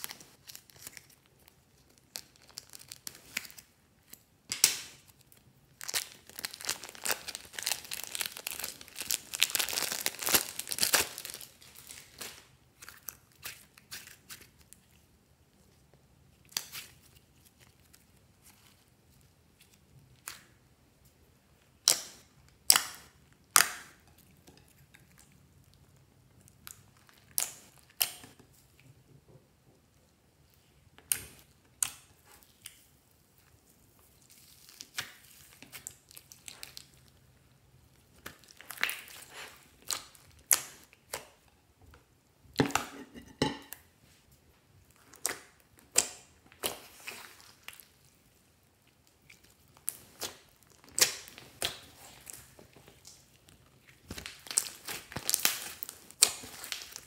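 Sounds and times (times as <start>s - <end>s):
slime clicking and popping: 45.2s - 46.9s.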